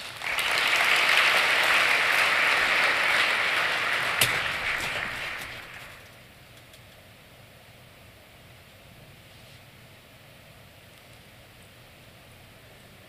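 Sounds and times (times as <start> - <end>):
large audience applauding: 0.0 - 6.2.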